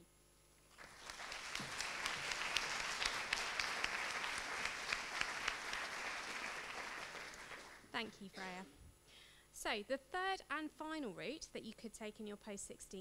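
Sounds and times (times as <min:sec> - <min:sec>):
audience applauding: 0:00.7 - 0:07.9.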